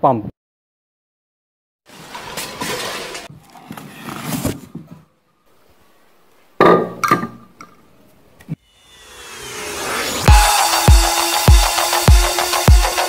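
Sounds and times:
cardboard box flaps rustling: 3.3s - 5.0s
heavy thunk on stone counter: 6.6s - 7.4s.

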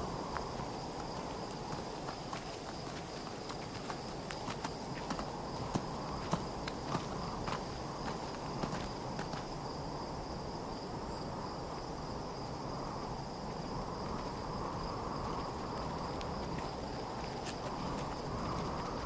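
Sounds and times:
footsteps: 0.0s - 9.6s, 13.0s - 19.0s
desert wind blowing: 0.0s - 19.0s.

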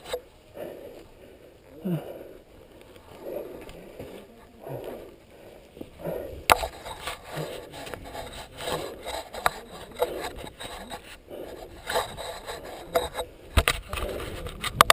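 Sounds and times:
bike tyres on loose dirt: 0.0s - 14.9s
bike knocking and rattling: 5.8s - 14.9s.

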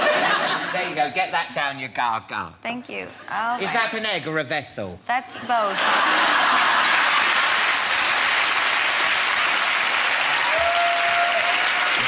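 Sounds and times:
audience applauding: 5.8s - 12.0s.

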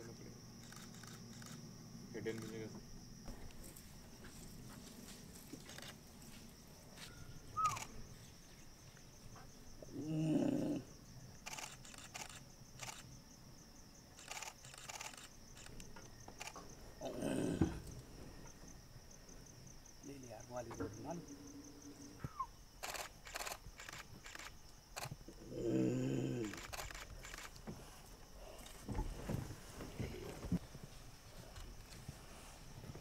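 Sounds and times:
high insect chorus: 0.0s - 33.0s
sharp clicks: 0.6s - 1.6s, 11.4s - 13.0s, 14.2s - 16.6s, 22.8s - 25.2s, 26.4s - 27.6s
low-pitched animal call: 7.6s - 7.9s.

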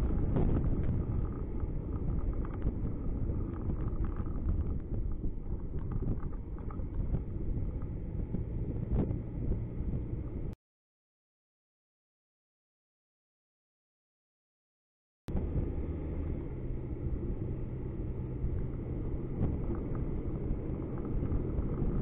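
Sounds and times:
car engine and tyres rumbling: 0.0s - 10.6s, 15.3s - 22.0s.

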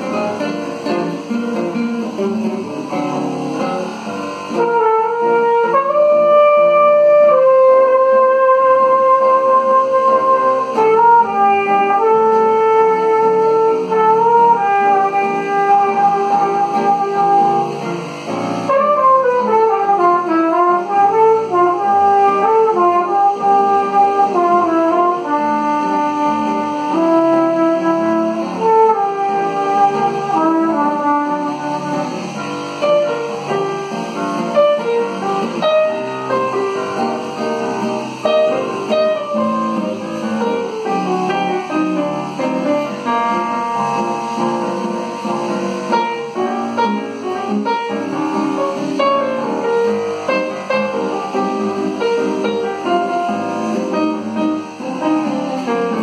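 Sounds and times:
digital piano: 0.0s - 56.0s
flugelhorn jazz melody: 0.0s - 56.0s
nylon-string guitar: 0.0s - 56.0s.

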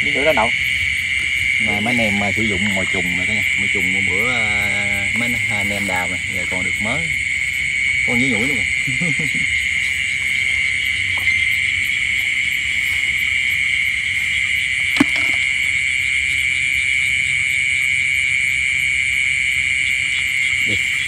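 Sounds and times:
crickets trilling: 0.0s - 21.0s
short knocks: 15.0s - 15.5s.

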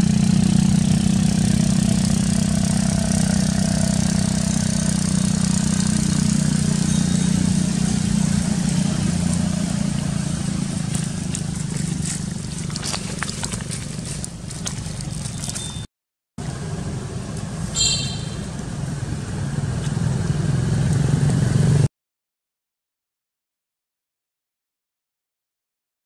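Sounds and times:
low engine hum: 0.0s - 21.9s
dry leaves crackling: 5.2s - 15.9s
short high chirp: 17.7s - 18.6s.

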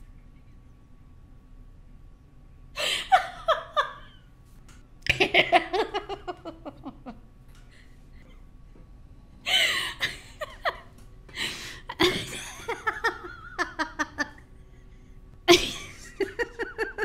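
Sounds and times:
person laughing and giggling: 2.8s - 4.3s, 5.1s - 7.4s, 9.5s - 14.5s, 15.5s - 17.0s.

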